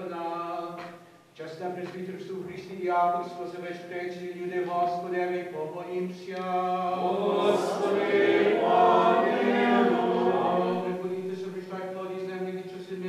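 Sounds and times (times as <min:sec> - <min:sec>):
priest intoning a chant: 0:01.4 - 0:13.0
congregation chanting in unison: 0:06.7 - 0:11.4.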